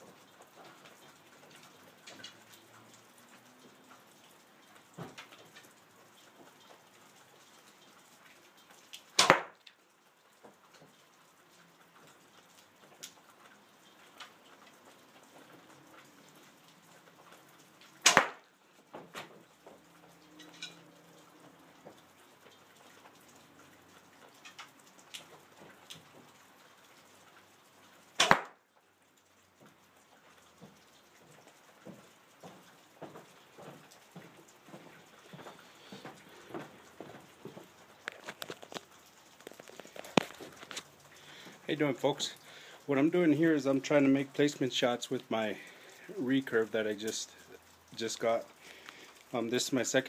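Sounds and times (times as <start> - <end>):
arrow smacking foam target: 9.2 - 9.6, 18.0 - 18.4, 28.2 - 28.6
faint ticks: 47.0 - 49.4.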